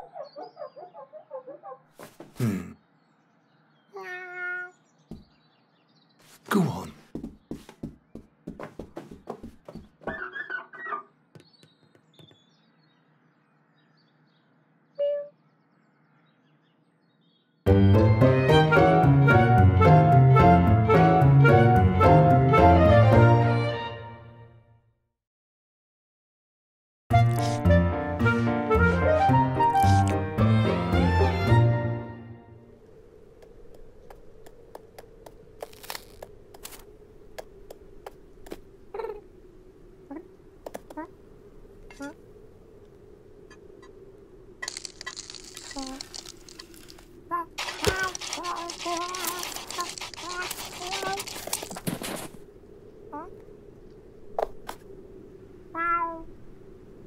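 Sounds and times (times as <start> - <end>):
paws squeaking on window glass: 9.0 - 12.4, 47.6 - 51.8
cat paws pattering on stone: 44.6 - 52.4
short scuffing rustle: 51.0 - 52.4
cartoon kitten mewing: 55.8 - 56.3.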